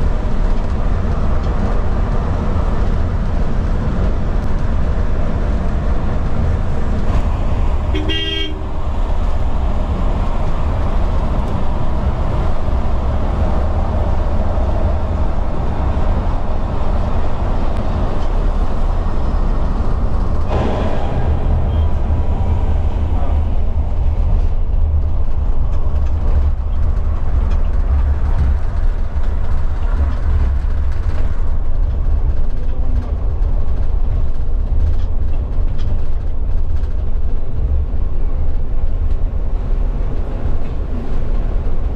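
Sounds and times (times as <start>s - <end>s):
road and tyre rumble: 0.0s - 41.9s
vehicle horn: 7.8s - 8.8s.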